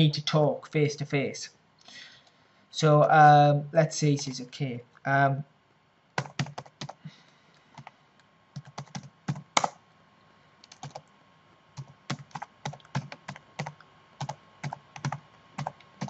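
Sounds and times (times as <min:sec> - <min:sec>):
keyboard typing: 0:06.2 - 0:07.0, 0:08.6 - 0:09.8, 0:10.6 - 0:11.1, 0:11.8 - 0:16.0.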